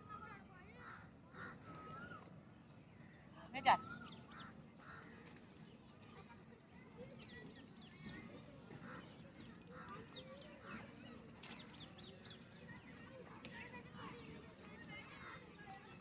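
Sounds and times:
birds chirping and calling: 7.4s - 14.2s.

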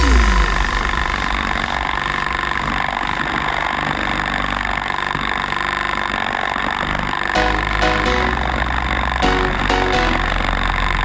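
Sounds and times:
electronic dance music: 7.4s - 10.8s
sustained synth tones: 7.4s - 11.0s.

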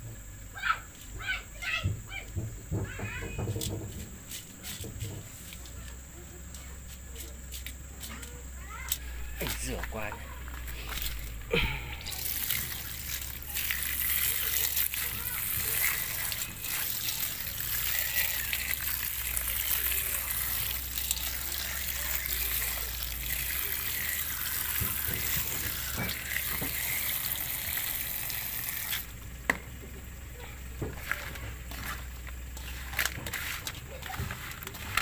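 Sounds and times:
water pouring into colander: 12.0s - 29.1s.

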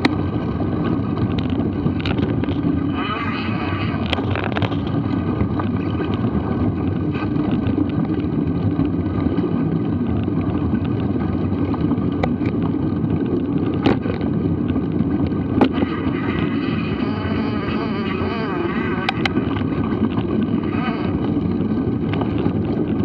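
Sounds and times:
bike tyre rumble on dirt: 0.0s - 23.0s
wind on microphone: 0.0s - 23.0s
bike knocks and rattles: 7.2s - 16.0s.

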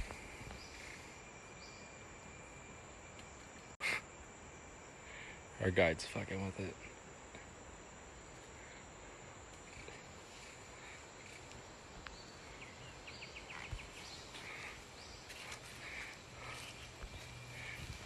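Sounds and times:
insects hissing: 0.0s - 18.0s
faint bird calls: 8.3s - 18.0s.

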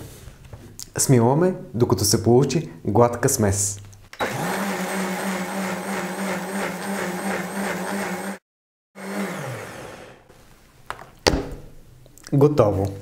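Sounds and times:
blender motor spinning down: 4.2s - 8.4s, 9.0s - 10.3s
blender running: 4.2s - 8.4s, 9.0s - 10.3s.

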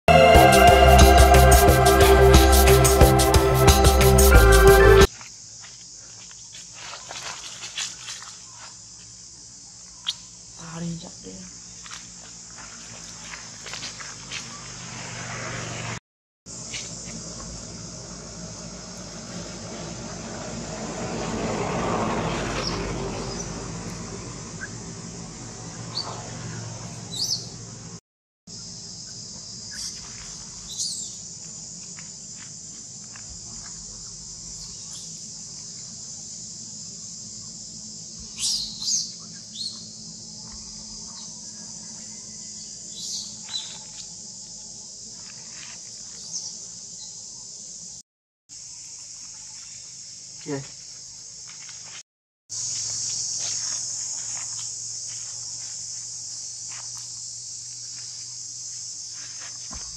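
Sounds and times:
rushing noise: 0.1s - 5.1s
forest insects droning: 0.1s - 59.9s.

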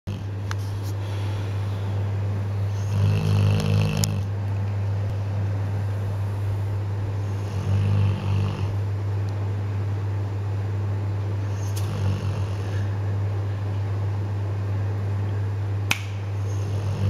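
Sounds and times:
puppy snoring: 0.1s - 0.4s, 2.7s - 4.3s, 7.2s - 8.8s, 11.4s - 12.9s, 16.4s - 17.0s
low steady hum: 0.1s - 17.0s.

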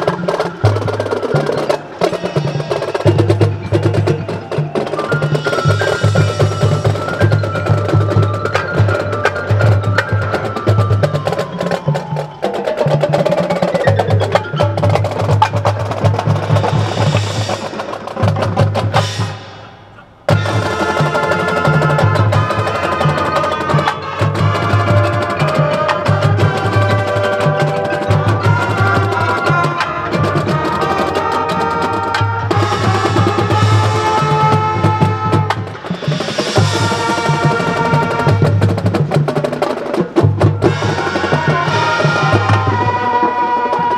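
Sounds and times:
drumline percussion beat: 0.0s - 43.9s
marching band playing: 0.0s - 43.9s
held brass chords: 14.7s - 39.2s, 40.6s - 43.9s.

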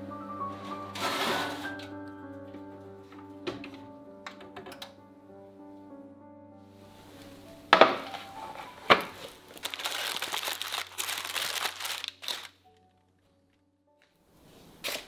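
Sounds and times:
foil and paper crinkling: 8.1s - 13.0s.

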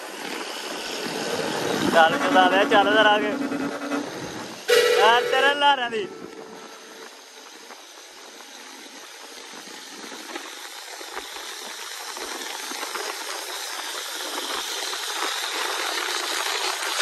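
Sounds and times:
tyres and wind rushing hiss: 0.0s - 17.0s
faint rattles and clicks: 7.0s - 17.0s.

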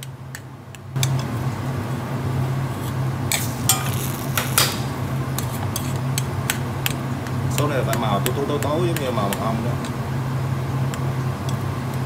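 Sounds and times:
metal spoon scraping a saucepan: 2.8s - 4.8s.

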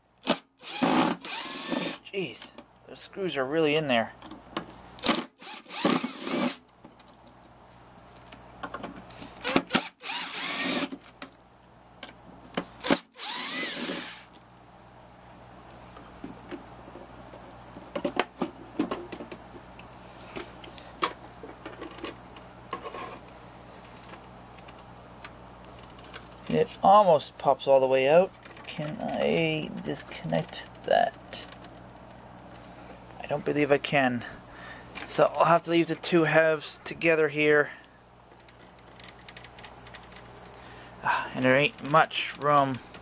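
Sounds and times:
cordless drill spinning: 0.2s - 2.0s, 5.0s - 6.6s, 9.4s - 10.9s, 12.8s - 14.3s.

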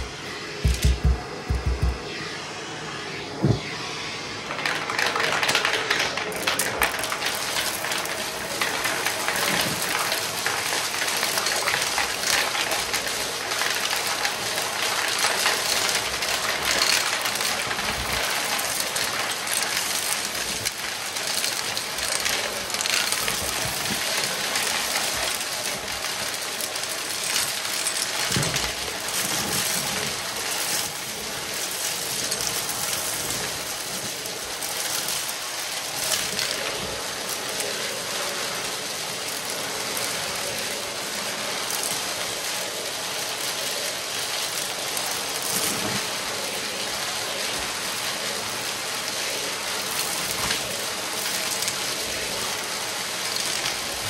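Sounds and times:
vacuum cleaner running: 0.0s - 54.0s.

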